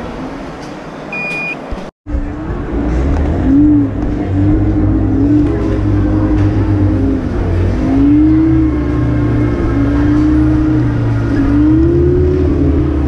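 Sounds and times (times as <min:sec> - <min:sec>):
short high beep: 0:01.1 - 0:01.6
steady low rumble: 0:02.1 - 0:13.0.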